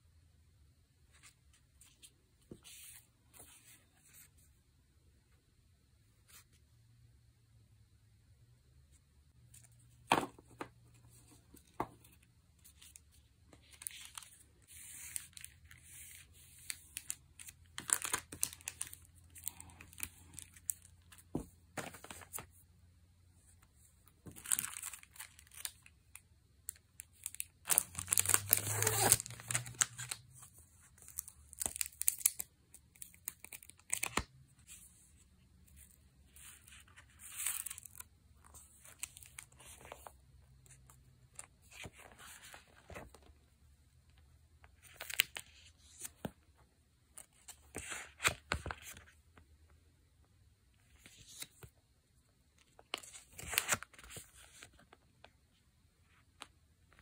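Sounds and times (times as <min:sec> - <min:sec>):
plastic packaging crinkling: 0:27.1 - 0:30.2.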